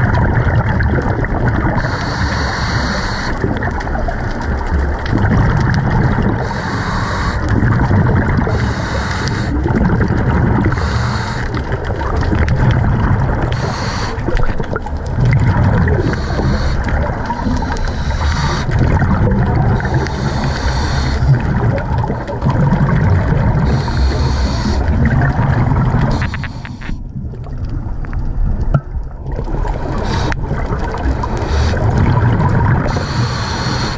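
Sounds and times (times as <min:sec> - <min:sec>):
exhaled bubbles rumbling: 0:00.0 - 0:33.9
regulator breathing hisses: 0:01.8 - 0:03.4, 0:06.4 - 0:07.5, 0:08.5 - 0:09.6, 0:10.7 - 0:11.6, 0:13.5 - 0:14.2, 0:16.0 - 0:18.8, 0:19.8 - 0:21.4, 0:23.6 - 0:24.8, 0:26.1 - 0:27.0, 0:30.0 - 0:30.4, 0:31.2 - 0:31.8, 0:32.9 - 0:33.9.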